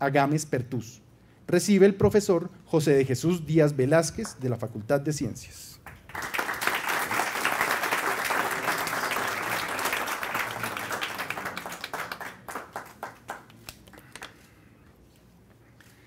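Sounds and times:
audience applauding: 0:05.9 - 0:14.4.

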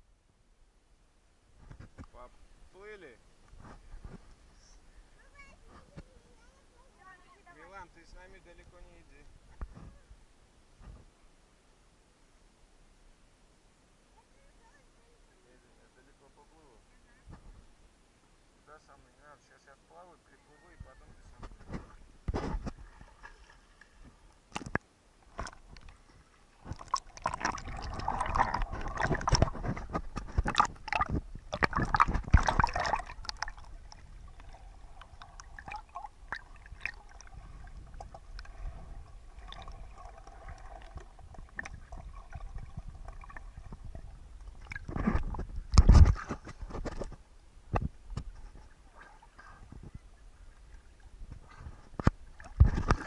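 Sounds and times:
underwater gurgling and sloshing: 0:21.3 - 0:53.0
water splashing: 0:21.6 - 0:47.2, 0:48.1 - 0:53.0.

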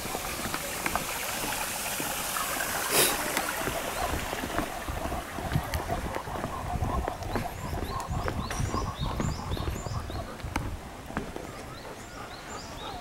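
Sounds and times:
footsteps on wooden boardwalk: 0:00.0 - 0:13.0.

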